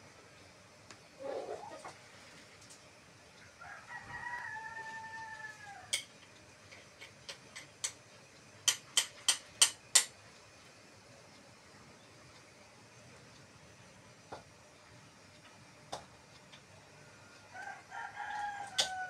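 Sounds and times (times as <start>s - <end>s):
rooster crowing: 3.4s - 6.0s, 17.0s - 19.0s.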